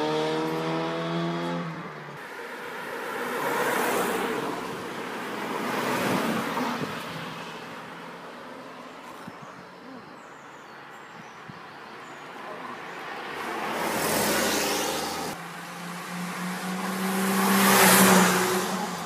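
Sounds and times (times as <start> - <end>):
sports car engine passing: 0.0 - 8.0, 13.1 - 19.0
convertible car engine passing: 12.9 - 19.0.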